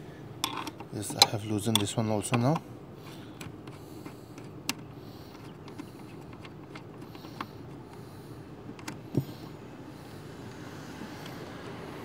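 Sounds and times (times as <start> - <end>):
wrench clicking on metal bolt: 0.4 - 2.6.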